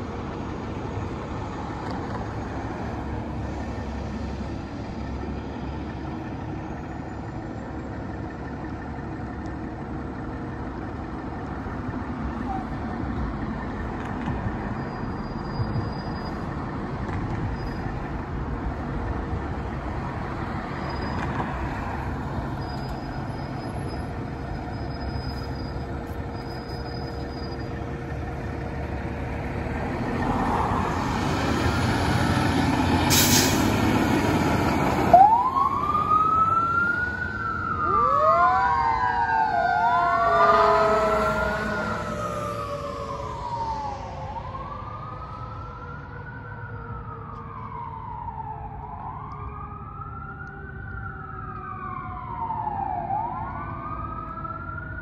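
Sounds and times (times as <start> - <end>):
fire engine diesel engine: 0.0 - 55.0
sharp air hiss: 33.1 - 33.7
siren wailing: 35.0 - 55.0.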